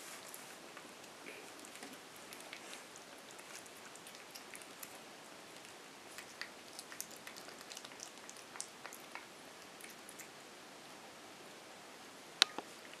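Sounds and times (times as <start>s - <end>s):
puppy chewing kibble: 0.3s - 10.4s.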